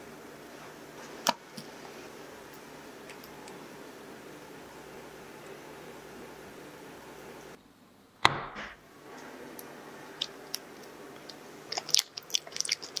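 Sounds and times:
sharp knock: 0:08.2 - 0:08.8
coconut milk pouring: 0:11.2 - 0:13.0.

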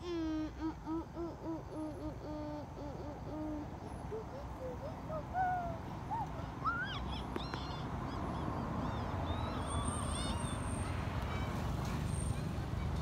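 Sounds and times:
monkeys squeaking and chirping: 0:03.2 - 0:10.6.

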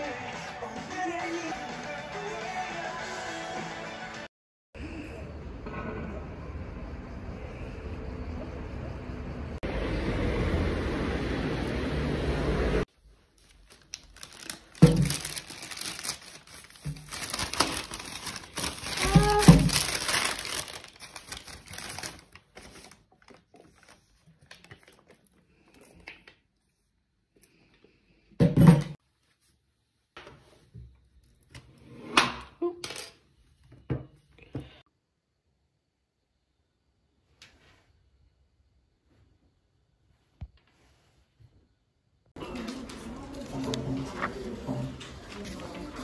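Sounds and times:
plastic bag rustling: 0:12.9 - 0:24.6.

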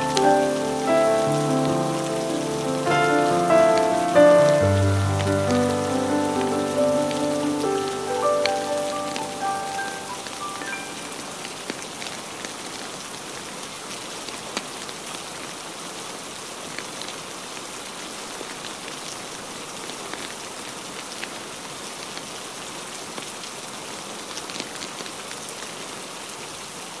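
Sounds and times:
log fire crackling: 0:00.0 - 0:13.0
steady rain: 0:00.0 - 0:27.0.

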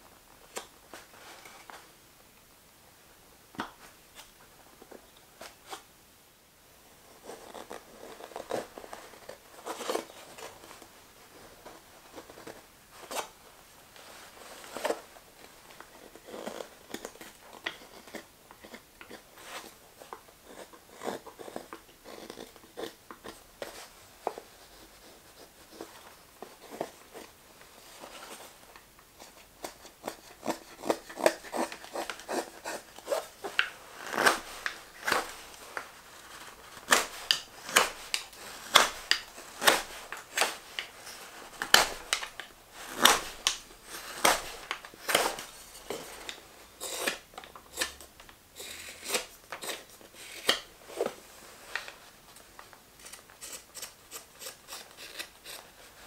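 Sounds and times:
knife carving wood: 0:15.9 - 0:19.7, 0:20.4 - 0:23.4, 0:29.2 - 0:48.0, 0:48.6 - 0:51.1, 0:53.0 - 0:56.0.

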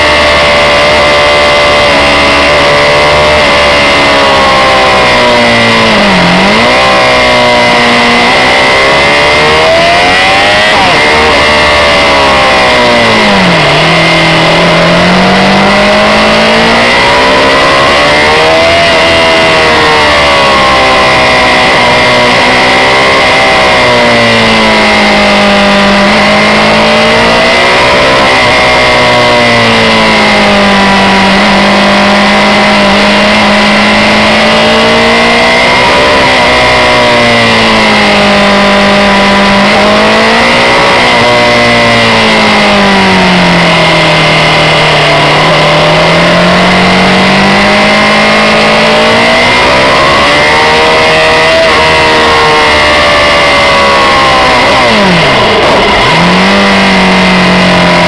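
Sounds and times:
steady high whine: 0:00.0 - 0:29.0, 0:42.1 - 0:58.0
motorcycle engine revving: 0:00.0 - 0:58.0.

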